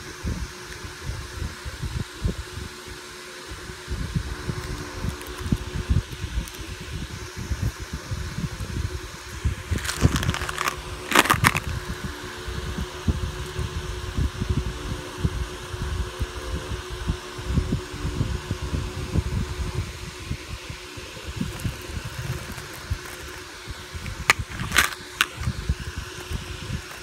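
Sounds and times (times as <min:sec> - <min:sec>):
steady low hum: 0:00.0 - 0:27.0
pellets rattling in plastic tub: 0:09.7 - 0:11.7, 0:21.6 - 0:25.6.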